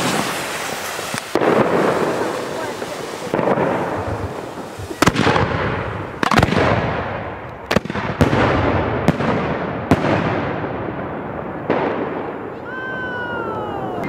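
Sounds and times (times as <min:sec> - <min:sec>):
firework bangs with echo: 0:00.0 - 0:13.3.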